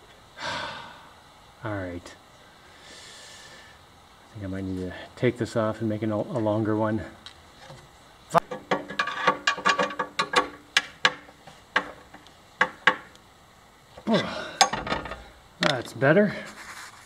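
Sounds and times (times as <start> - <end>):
metallic clicks and knocks: 8.4 - 13.2, 14.6 - 15.9.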